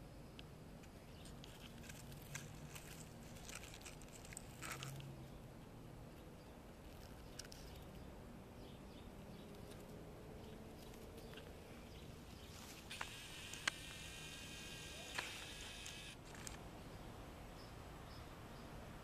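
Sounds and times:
faint outdoor background: 0.0 - 19.0
sharp clicks: 12.9 - 16.6.

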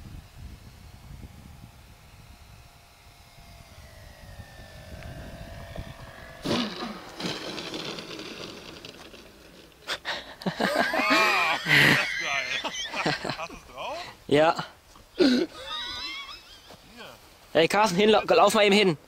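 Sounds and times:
model airplane motor whine: 0.0 - 10.4
loud rough noise: 4.0 - 13.4.

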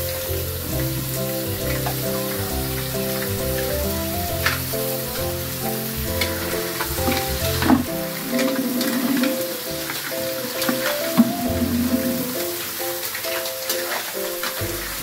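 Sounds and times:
background music with held notes: 0.0 - 15.0
mussels sizzling in a wok: 0.0 - 15.0
metal ladle scraping a pan: 5.5 - 9.5.

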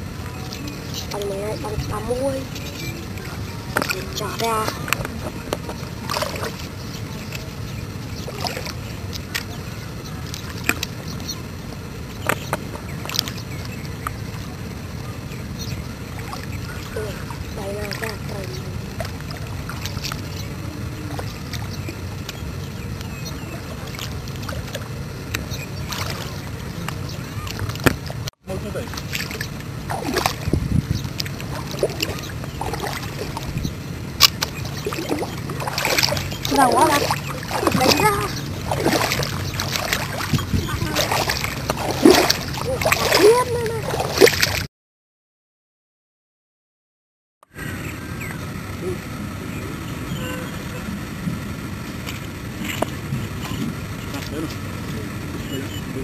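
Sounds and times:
footsteps wading through water: 0.2 - 44.7.

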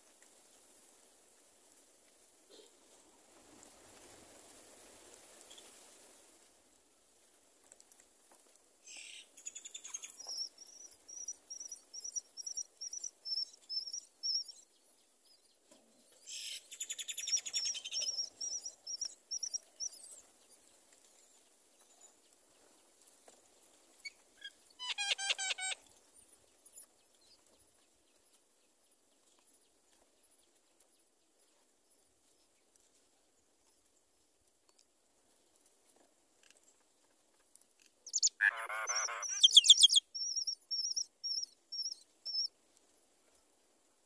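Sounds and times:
harsh bird call: 38.1 - 40.0
bird chattering: 38.1 - 42.5
nestlings cheeping: 38.1 - 42.5.

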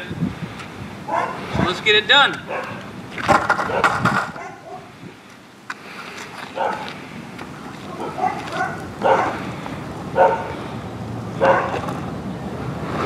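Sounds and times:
wheels rolling on asphalt: 0.1 - 13.0
dog barking: 1.1 - 1.4, 2.5 - 2.8, 3.6 - 4.9, 6.6 - 6.9, 8.0 - 9.4, 10.2 - 10.6, 11.4 - 11.8.

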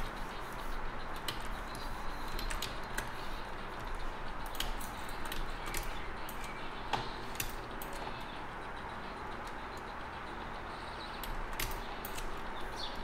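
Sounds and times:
keyboard and mouse clicks: 1.2 - 3.2, 11.2 - 12.4.

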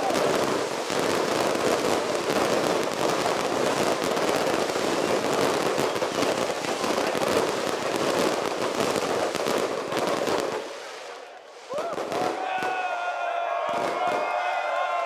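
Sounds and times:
fireworks crackling: 0.0 - 14.6.

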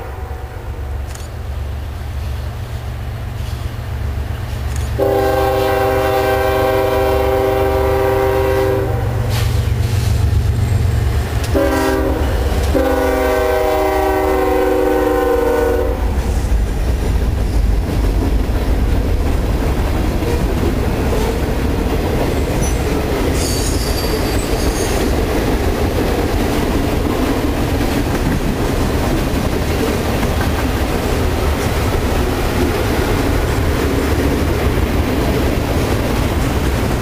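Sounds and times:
train air horn blasts: 0.0 - 0.8, 5.0 - 10.1, 11.5 - 16.2.

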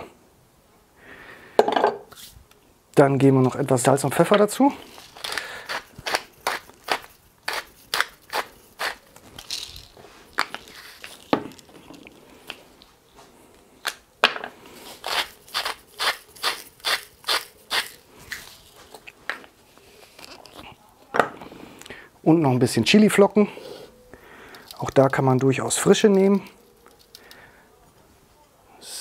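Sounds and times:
pepper mill grinding crunch: 4.3 - 12.6, 14.8 - 19.4, 20.0 - 20.7, 24.5 - 27.4.

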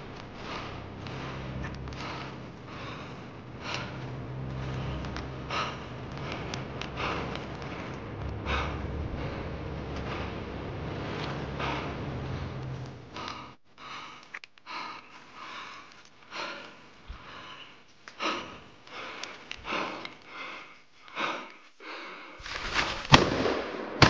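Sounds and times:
person breathing hard: 0.0 - 23.1
rustling through brush: 22.4 - 23.2
sharp crack: 22.5 - 24.0.

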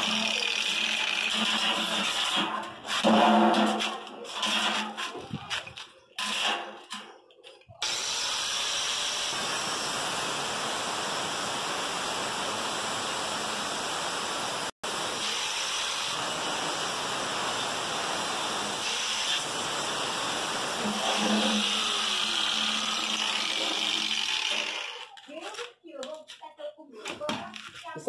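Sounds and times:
angle grinder cutting steel: 0.0 - 4.9, 15.2 - 19.5, 20.7 - 25.2.

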